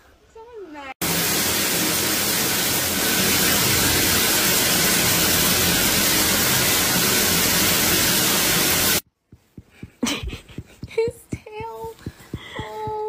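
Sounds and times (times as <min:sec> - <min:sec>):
shower water spray hissing: 0:01.0 - 0:09.0.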